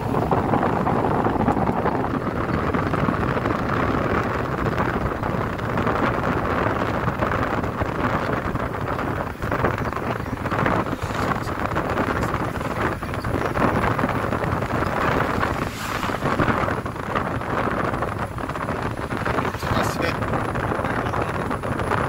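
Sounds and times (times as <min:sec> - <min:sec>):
car driving at speed: 0:00.0 - 0:22.0
wind buffeting microphone: 0:00.0 - 0:22.0.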